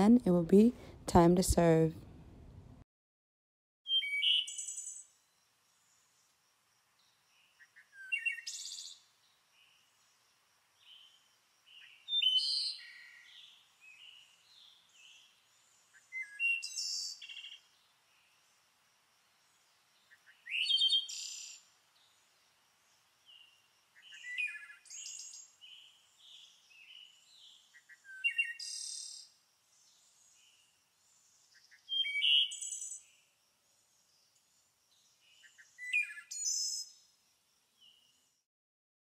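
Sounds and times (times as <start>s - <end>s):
birds chirping and trilling: 3.9s - 5.1s, 31.3s - 33.0s.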